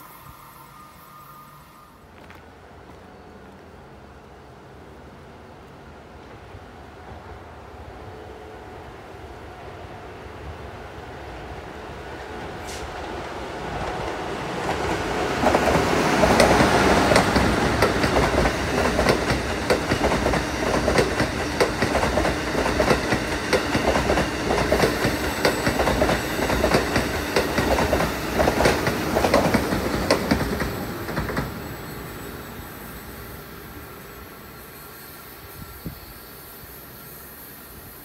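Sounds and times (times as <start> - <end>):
train wheels clacking over rail joints: 13.8 - 31.6.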